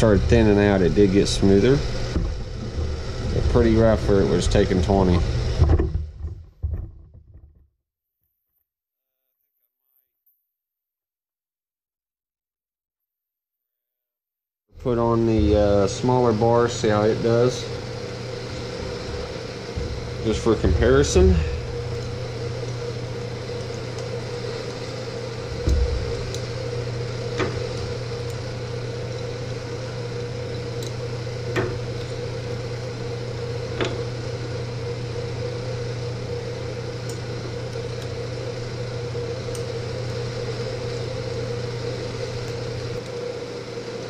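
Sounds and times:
mechanical hum: 0:00.0 - 0:07.5, 0:14.7 - 0:44.0
dull thump: 0:25.6 - 0:26.2.

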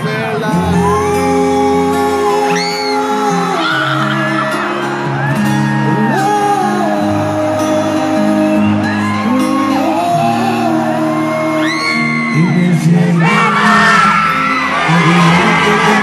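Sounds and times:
live concert music with singing: 0:00.0 - 0:16.0
crowd whooping and shouting: 0:00.5 - 0:16.0.

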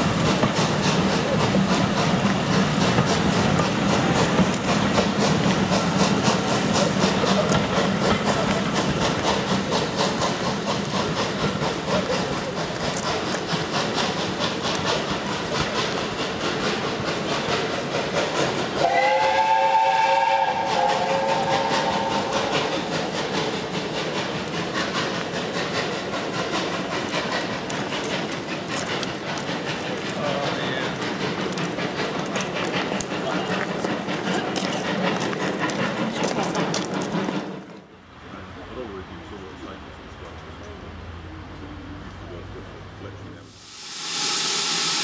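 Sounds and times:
train wheels clicking on rail joints: 0:00.0 - 0:42.4
train rumble: 0:00.0 - 0:45.0
steam locomotive whistle: 0:18.8 - 0:22.5.

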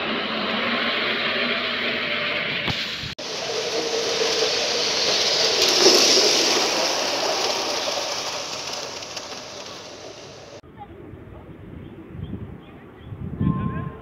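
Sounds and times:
model train wheels rumbling: 0:00.0 - 0:10.6.

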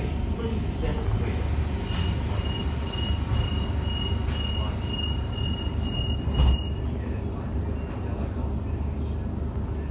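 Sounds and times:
high-pitched wheel squeal: 0:01.6 - 0:06.8.

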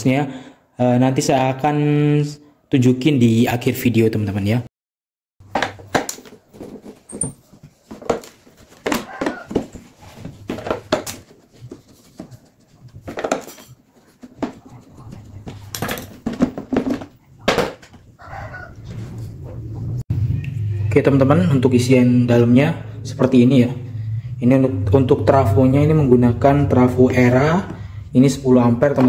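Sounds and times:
screws and metal handled: 0:07.0 - 0:07.5.

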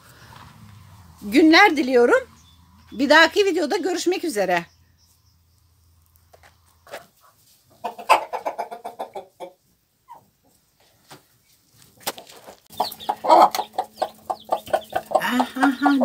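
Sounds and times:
chickens clucking: 0:06.0 - 0:16.0.

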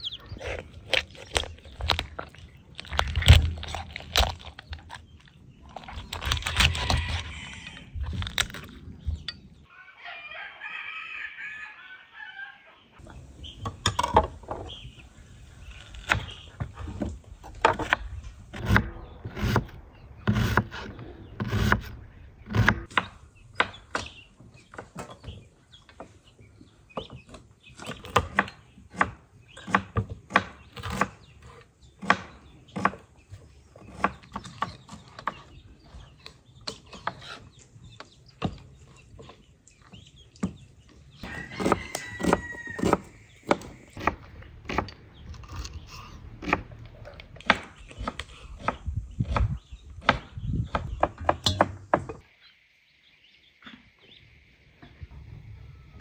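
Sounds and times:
knife chopping on wooden board: 0:22.5 - 0:24.1.

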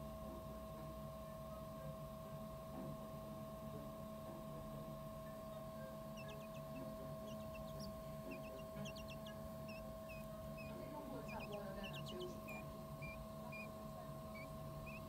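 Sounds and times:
steady electrical hum: 0:00.0 - 0:15.0
quail chick peeping: 0:04.6 - 0:15.0.

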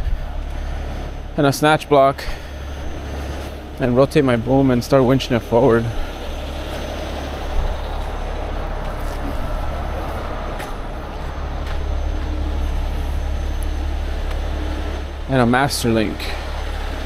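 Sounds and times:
diesel engine rumbling: 0:00.0 - 0:17.0.

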